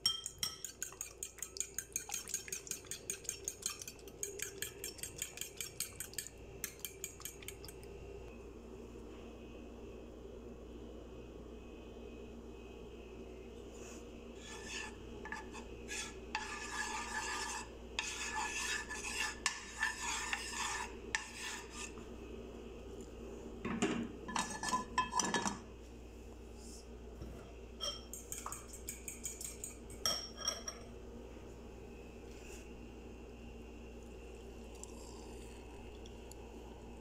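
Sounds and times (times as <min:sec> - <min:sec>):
metal utensil scraping dishes: 0:00.4 - 0:07.8, 0:24.3 - 0:25.6, 0:27.8 - 0:30.8.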